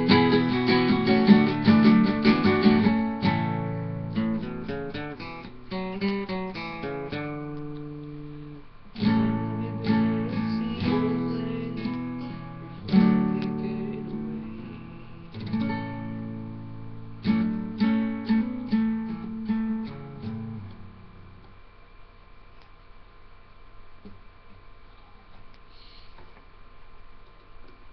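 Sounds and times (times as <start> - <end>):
classical guitar fingerpicking and strumming: 0.0 - 21.3.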